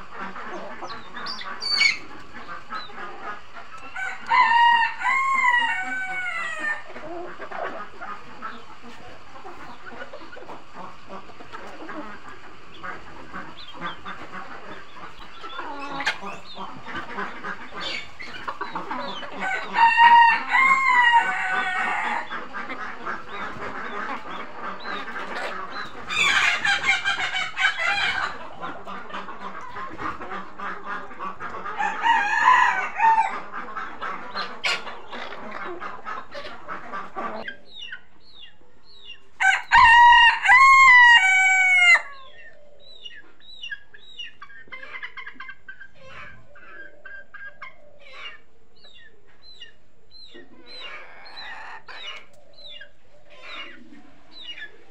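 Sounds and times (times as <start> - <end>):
hens clucking: 0.0 - 54.9
rooster crowing: 4.0 - 6.8, 19.4 - 22.2, 31.8 - 33.3, 39.4 - 42.2.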